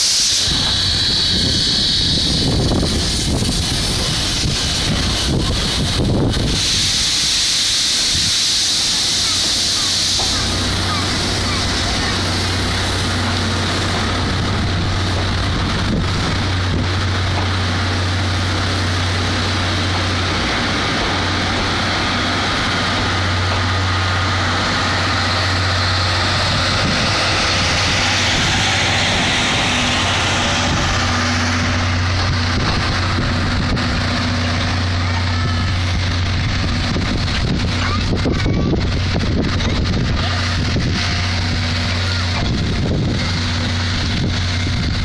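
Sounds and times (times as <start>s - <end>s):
train wheels rumbling on rails: 0.0s - 45.0s
low hum: 10.3s - 45.0s.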